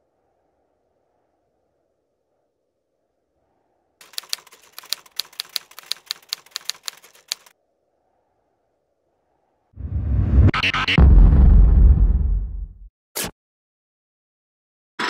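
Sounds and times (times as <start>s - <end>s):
typewriter keys clacking: 4.0s - 7.5s.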